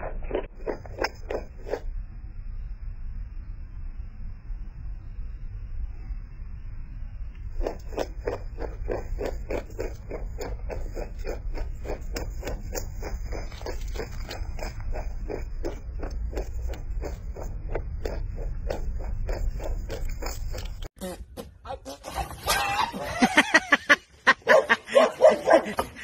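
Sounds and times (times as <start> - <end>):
rabbit crunching herbs: 0.3 - 1.8, 7.4 - 20.9.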